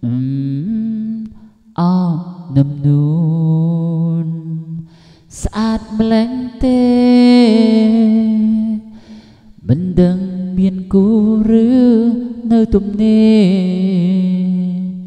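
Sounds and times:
person singing long notes: 0.0 - 9.0, 9.6 - 15.0.

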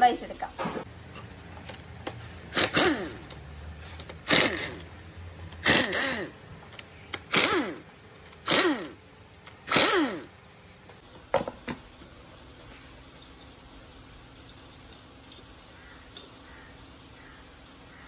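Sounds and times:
pneumatic impact wrench bursts: 2.3 - 4.9, 5.6 - 6.4, 7.1 - 9.0, 9.6 - 10.4.

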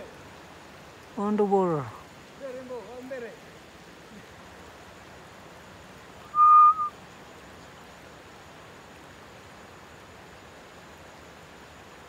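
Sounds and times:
background hiss: 0.0 - 12.0
whistled note: 6.2 - 6.9.

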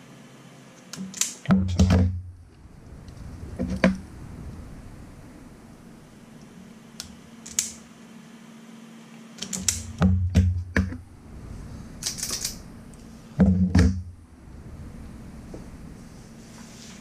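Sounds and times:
faint steady hum: 0.0 - 17.0
heavier knocks: 13.4 - 14.1
short rustle: 15.6 - 17.0.

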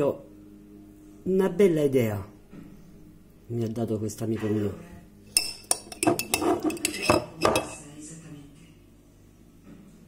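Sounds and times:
metal spoon clinking on container: 5.3 - 7.8.

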